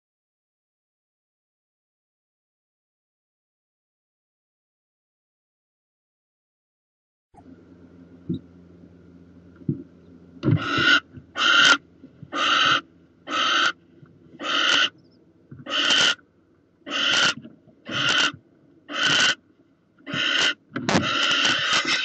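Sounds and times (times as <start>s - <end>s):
barn owls hissing: 10.5s - 13.8s, 14.4s - 15.0s, 15.6s - 16.2s, 16.8s - 19.4s, 20.0s - 22.0s.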